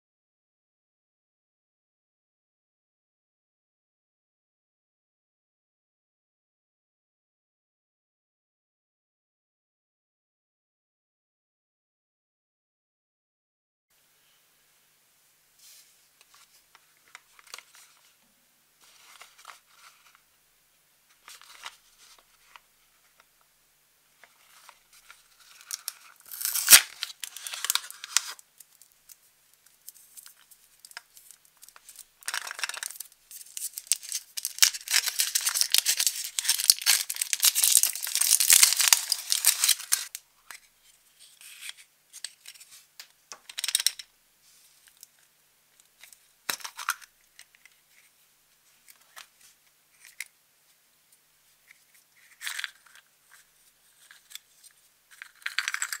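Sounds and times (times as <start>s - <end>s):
foil wrapper crinkling and tearing: 25.1s - 40.2s.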